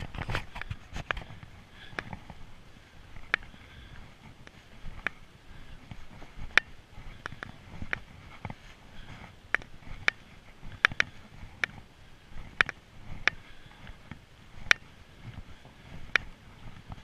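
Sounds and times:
sharp clicks: 9.5s - 11.8s.

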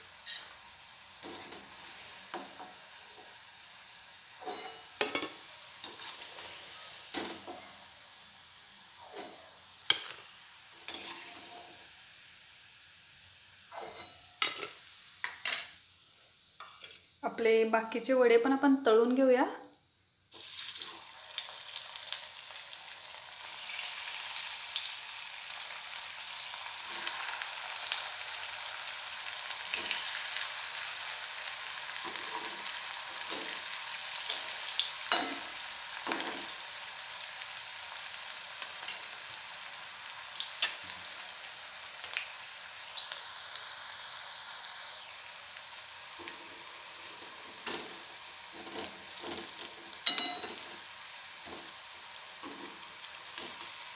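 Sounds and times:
food deep-frying in hot oil: 0.0s - 19.3s, 20.1s - 53.9s.

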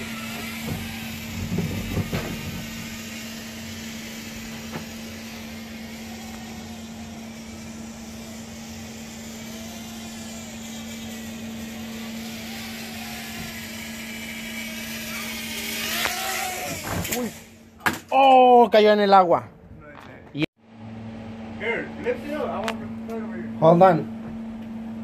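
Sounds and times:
drone motors buzzing: 0.0s - 17.8s.

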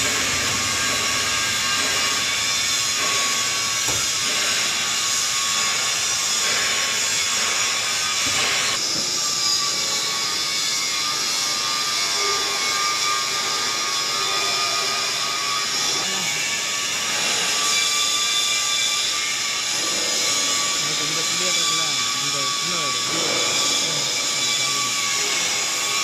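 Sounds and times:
cooling fan rushing air: 0.0s - 8.8s.

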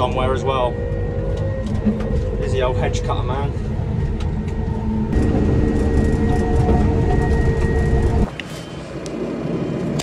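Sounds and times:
telehandler engine running: 0.0s - 10.0s
machine idling: 4.9s - 8.3s.

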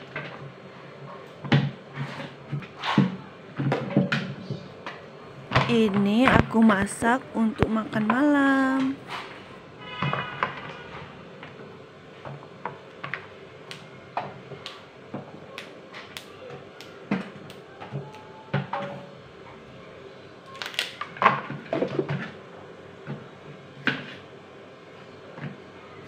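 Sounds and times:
beans snapping: 15.5s - 18.2s, 20.5s - 21.1s.

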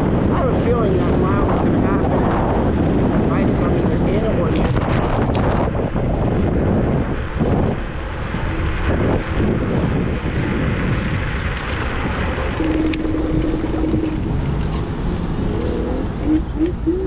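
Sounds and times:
road and tyre noise: 0.0s - 17.0s
air rushing past: 4.7s - 17.0s
steady tone: 12.4s - 17.0s.

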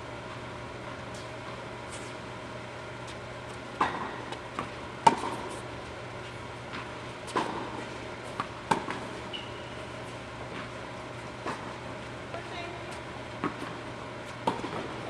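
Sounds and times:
tennis ball bouncing: 3.7s - 5.6s, 6.7s - 10.8s, 11.4s - 15.0s
racket hitting tennis ball: 3.8s - 5.6s, 6.7s - 9.2s, 13.4s - 15.0s
shoe squeak: 9.3s - 9.9s.

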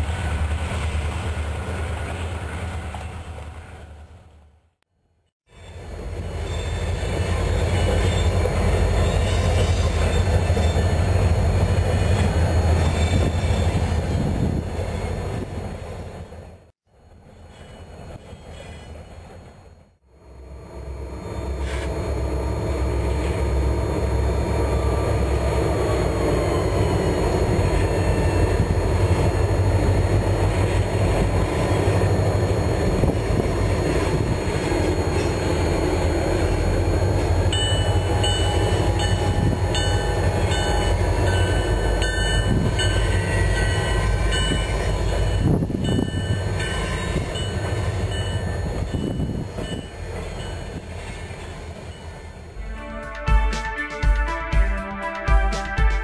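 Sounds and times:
short high ringing tones: 37.5s - 50.8s.

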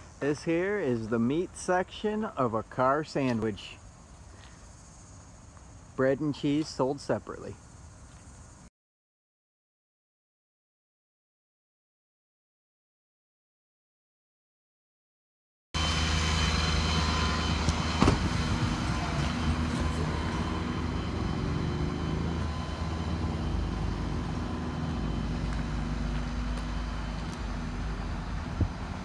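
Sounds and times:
vehicle engine idling: 15.8s - 29.0s.

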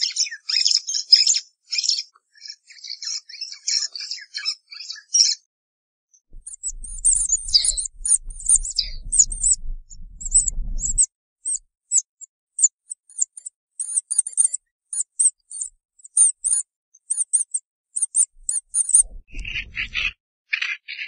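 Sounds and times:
low rumble: 6.3s - 11.1s, 18.3s - 20.2s
meerkat chirping calls: 6.4s - 11.6s, 18.0s - 20.1s.

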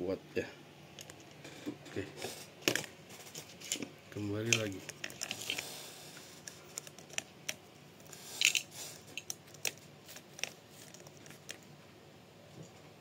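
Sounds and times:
small metal parts clicking: 4.4s - 5.6s, 8.4s - 11.6s.

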